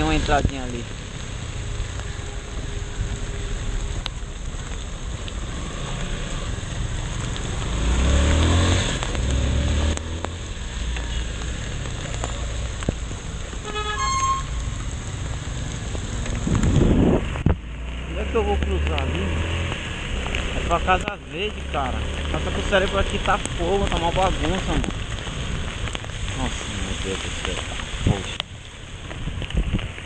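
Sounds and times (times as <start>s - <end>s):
motorcycle engine and road noise: 0.0s - 30.0s
vehicle horn toot: 13.6s - 14.6s.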